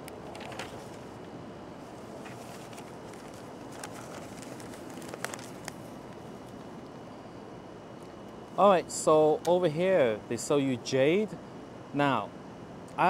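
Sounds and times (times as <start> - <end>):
low background hiss: 0.0 - 13.0
newspaper pages rustling: 0.2 - 1.2, 1.8 - 6.7.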